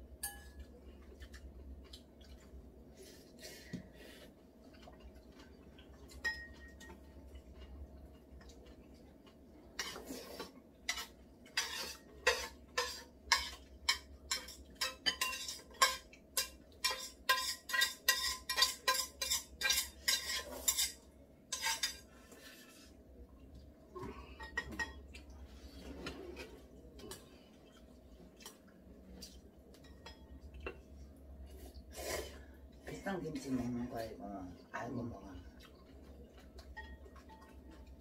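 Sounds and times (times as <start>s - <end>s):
metal utensil scraping a pot: 9.8s - 23.0s.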